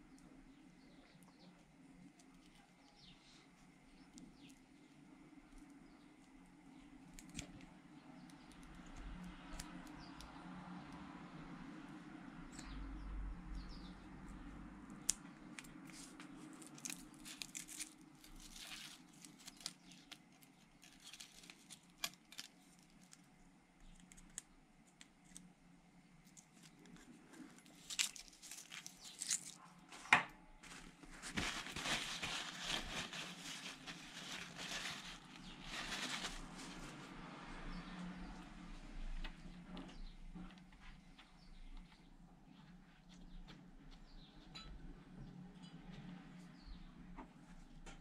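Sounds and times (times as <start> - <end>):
paper towel crinkling: 15.8 - 23.1, 26.2 - 37.2.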